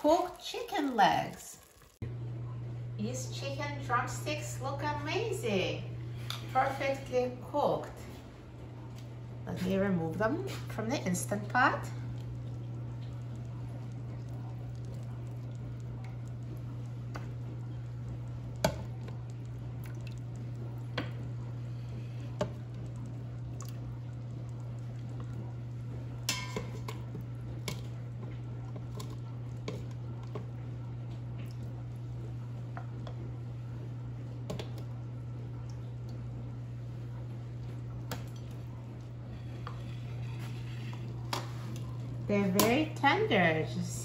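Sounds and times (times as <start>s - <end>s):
steady low hum: 1.9s - 44.0s
metal tongs clinking on pot: 26.3s - 26.8s.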